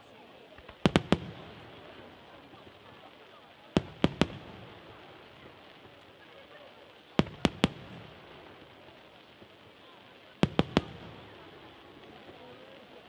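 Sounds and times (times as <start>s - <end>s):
firework shells bursting: 0.6s - 3.1s, 3.7s - 6.2s.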